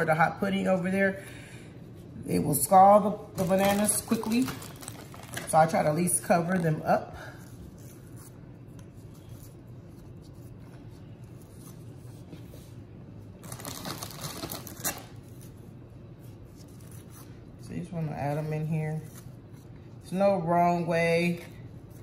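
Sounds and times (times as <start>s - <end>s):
gloved hands handling cookies: 0.0s - 22.0s
low steady hum: 0.0s - 22.0s.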